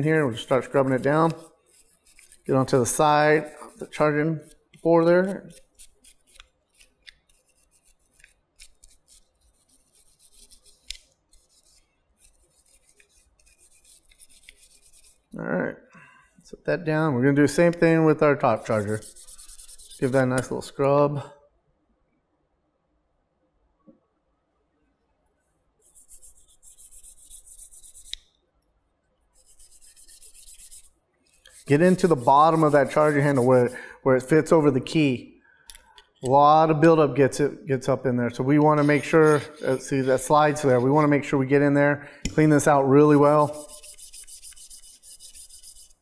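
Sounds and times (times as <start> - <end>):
brush scrubbing metal grooves: 0.0 - 15.3, 18.4 - 20.6, 29.4 - 33.8, 38.5 - 41.2, 42.5 - 46.0.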